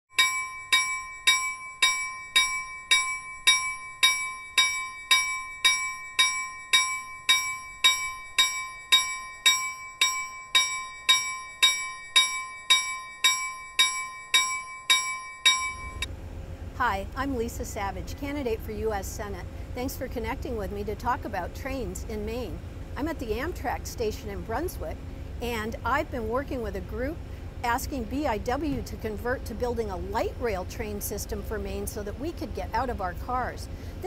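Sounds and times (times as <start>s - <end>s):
train bell ringing: 0.1s - 16.1s.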